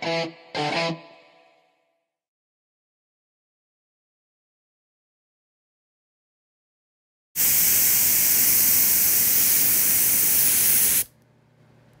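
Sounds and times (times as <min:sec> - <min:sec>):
steady high hiss: 0:07.4 - 0:11.1.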